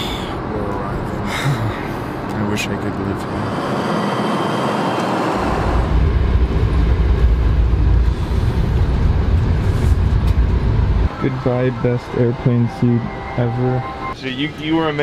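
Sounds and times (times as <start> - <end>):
low rumble of airliner rolling: 2.1 - 13.0.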